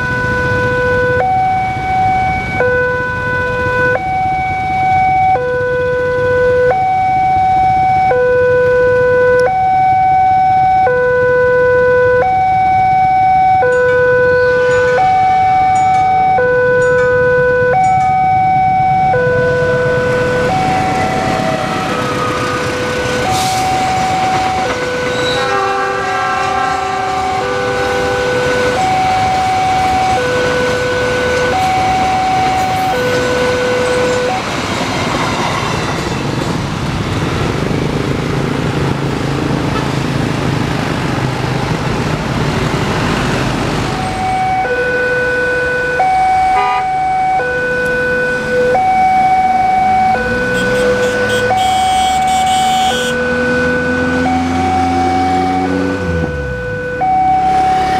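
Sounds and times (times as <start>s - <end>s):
two-note crossing alarm: 0.0s - 34.4s, 44.0s - 57.9s
locomotive horn: 2.6s - 4.1s, 5.3s - 6.8s, 13.6s - 17.8s, 19.1s - 34.5s, 39.7s - 40.0s, 44.2s - 49.0s, 49.6s - 57.9s
freight wagons rumbling: 13.8s - 44.6s.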